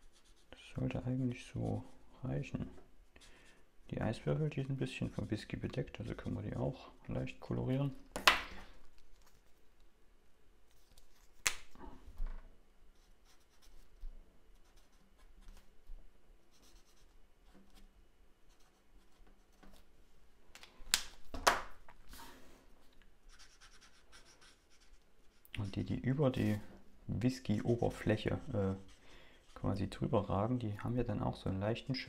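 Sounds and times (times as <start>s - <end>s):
marker tip scratching paper: 23.3s - 26.5s.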